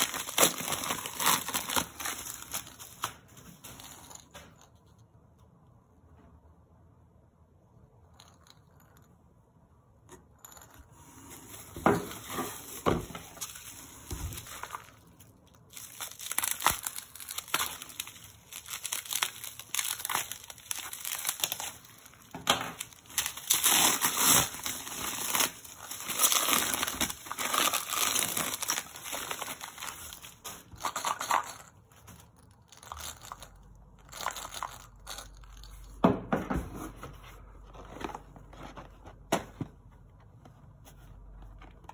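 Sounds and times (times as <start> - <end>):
bubble wrap crinkling: 0.0 - 4.3, 11.4 - 35.8.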